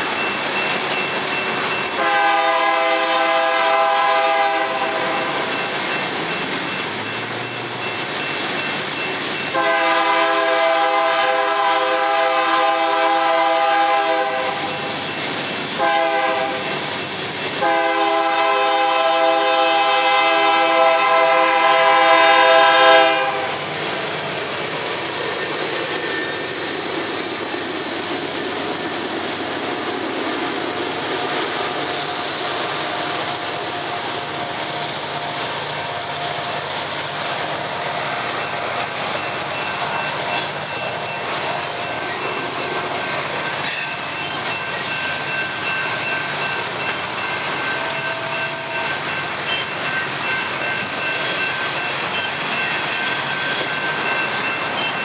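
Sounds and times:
train wheels rumbling and clacking: 0.0s - 55.0s
locomotive air horn blasts: 2.0s - 5.2s, 9.5s - 14.9s, 15.8s - 16.7s, 17.6s - 23.6s.

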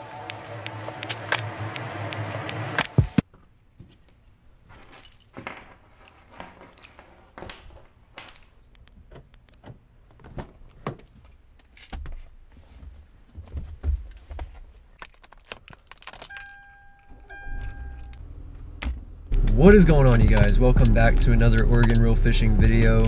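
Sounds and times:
keys jangling: 4.8s - 5.4s, 15.4s - 18.2s.

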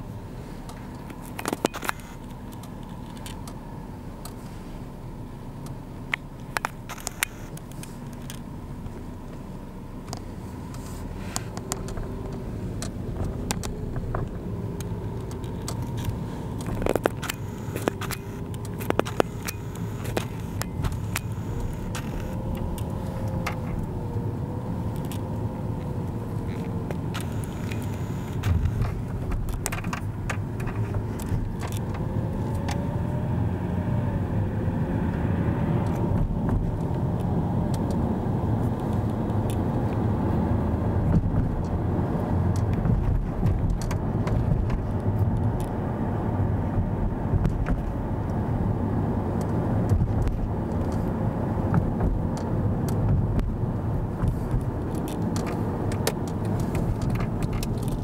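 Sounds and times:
faint whine: 0.0s - 33.1s
car cabin road rumble: 0.0s - 58.0s
small clicks and rattles: 24.9s - 32.9s, 54.2s - 58.0s.

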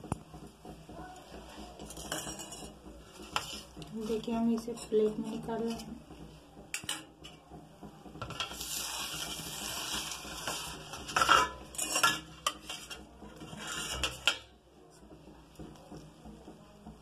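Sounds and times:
metal spoon scraping steel plate: 8.3s - 14.4s.

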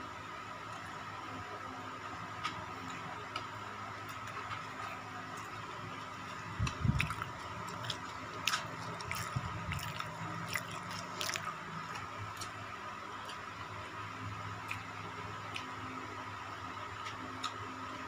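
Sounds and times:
faint steady hum: 0.0s - 18.0s
man chewing with mouth smacks: 6.3s - 12.6s, 14.6s - 15.8s.

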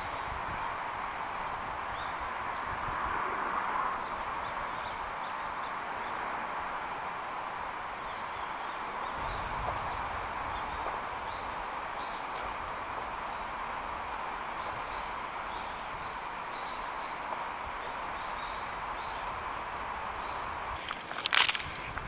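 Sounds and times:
outdoor background hiss: 0.0s - 22.0s
loud crunching rustle: 20.7s - 22.0s.

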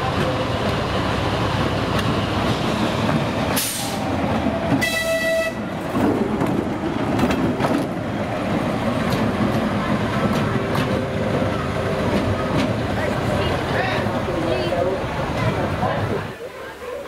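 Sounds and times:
diesel locomotive rumbling: 0.0s - 17.0s
train horn blast: 4.8s - 5.7s.

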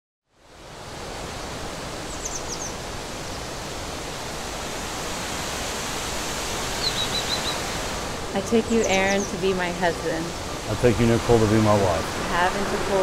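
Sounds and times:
outdoor ambient rushing noise: 0.3s - 13.0s
bird chirping: 2.1s - 2.8s, 6.8s - 7.6s, 8.4s - 9.6s.

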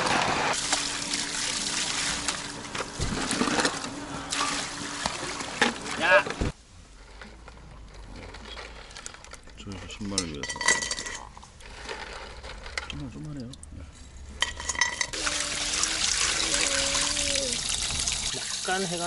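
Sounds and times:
tap water pouring: 15.1s - 19.0s.

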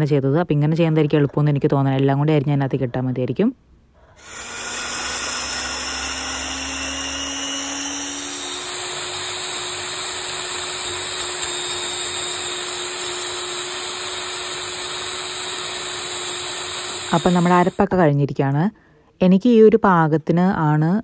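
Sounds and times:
blender motor whirring: 4.2s - 17.9s.

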